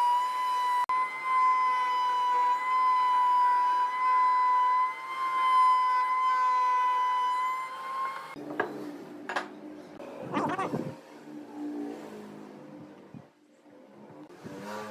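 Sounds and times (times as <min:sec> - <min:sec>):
wood router whining: 0:00.0 - 0:11.9.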